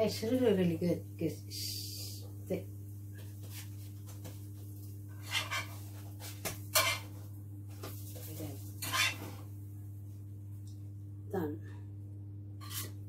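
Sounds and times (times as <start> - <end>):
steady low hum: 0.0 - 13.0
utensil scraping frying pan: 5.1 - 7.2, 8.8 - 9.5, 12.6 - 13.0.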